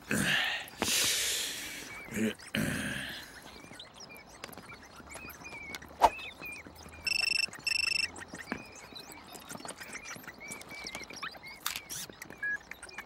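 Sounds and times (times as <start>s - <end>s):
small high chirps: 3.6s - 13.0s
telephone ringing: 7.1s - 8.1s.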